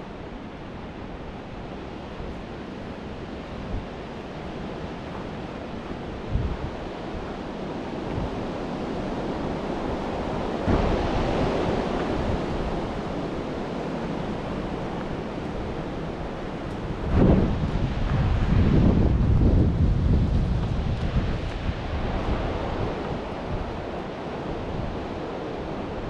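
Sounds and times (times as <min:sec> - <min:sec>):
wind blowing: 0:00.0 - 0:26.0
wind buffeting microphone: 0:00.0 - 0:26.0.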